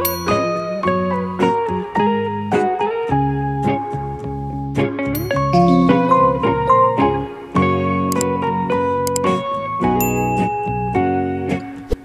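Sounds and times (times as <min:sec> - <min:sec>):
high tinkling chime: 0:00.0 - 0:01.0, 0:05.2 - 0:07.2
plucked notes music: 0:05.2 - 0:08.7.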